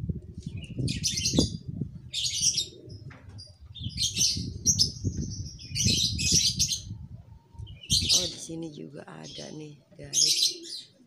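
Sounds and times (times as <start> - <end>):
small birds chirping: 0.3 - 11.0.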